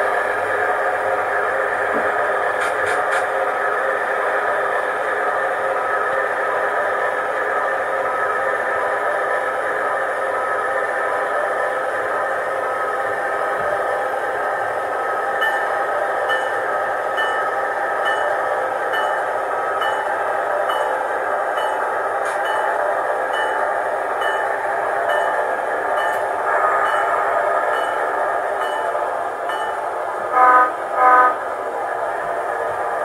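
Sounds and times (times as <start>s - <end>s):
model locomotive diesel engine sound: 0.0s - 33.0s
locomotive horn blasts: 30.3s - 31.4s.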